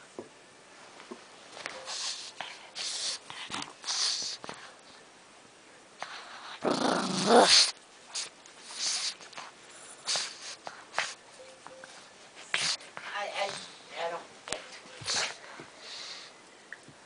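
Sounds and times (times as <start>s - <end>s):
dog snorting breaths: 1.8s - 4.7s, 7.5s - 11.2s, 15.0s - 16.3s
dog growling in play: 6.4s - 7.7s.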